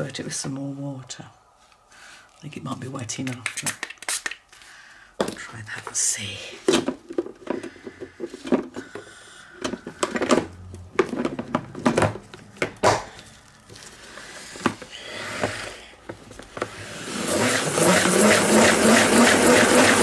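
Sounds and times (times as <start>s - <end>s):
salad spinner whirring and clicking: 17.0s - 20.0s.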